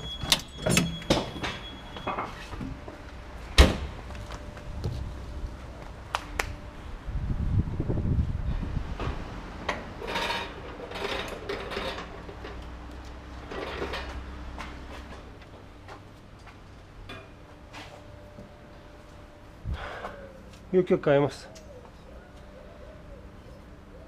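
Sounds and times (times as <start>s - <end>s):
metal tools clinking and scraping: 10.0s - 12.6s.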